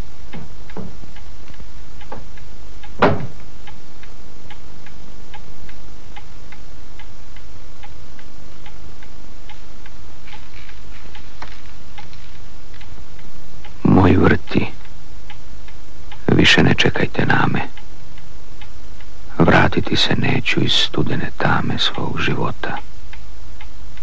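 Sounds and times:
loud knock: 3.0s - 3.4s.

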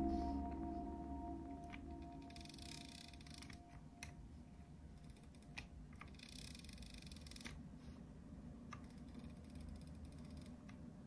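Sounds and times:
low steady hum: 0.0s - 5.2s.

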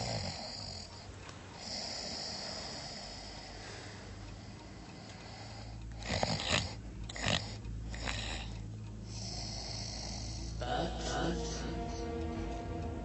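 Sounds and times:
person snoring: 0.0s - 0.9s, 1.6s - 3.6s, 5.1s - 12.0s.

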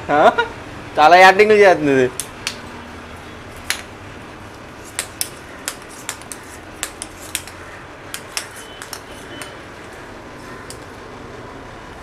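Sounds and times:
crab legs clicking on tile floor: 3.6s - 3.9s, 4.5s - 11.0s.

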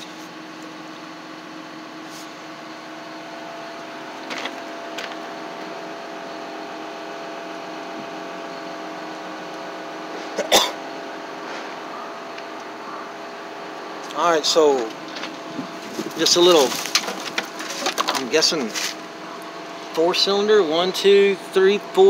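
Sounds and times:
person clearing throat: 10.3s - 10.8s.

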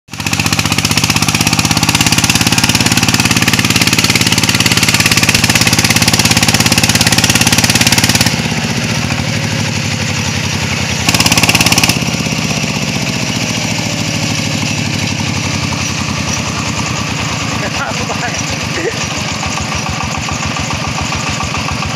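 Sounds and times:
diesel engine chugging: 0.1s - 21.9s.

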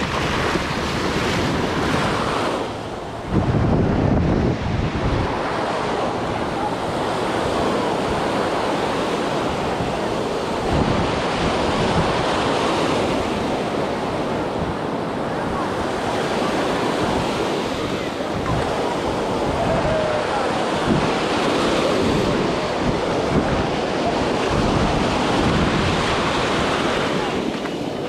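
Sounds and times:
ocean surf on beach: 0.0s - 28.0s
wind noise on microphone: 0.0s - 28.0s.

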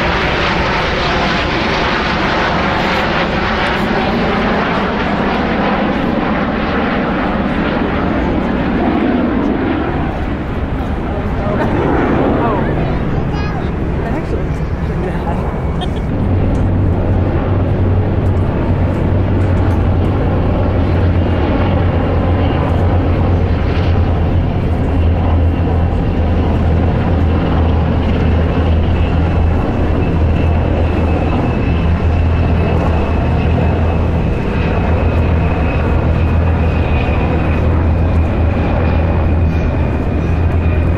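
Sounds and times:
helicopter rotor drone: 0.0s - 40.9s
high turbine whine: 0.0s - 40.9s.

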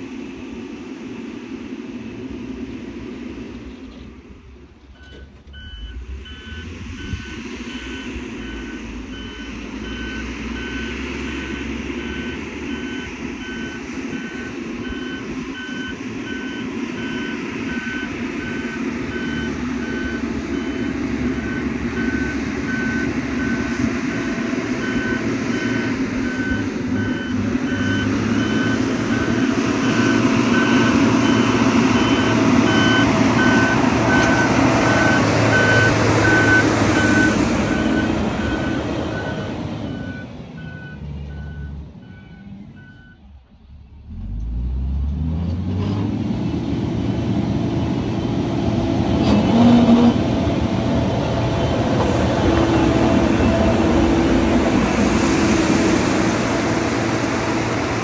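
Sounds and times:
diesel engine running: 0.0s - 58.0s
reversing alarm beeping: 5.0s - 43.2s.

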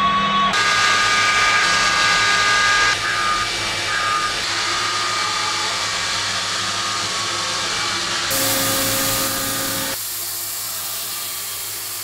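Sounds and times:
milling machine cutting steel: 0.6s - 12.0s.

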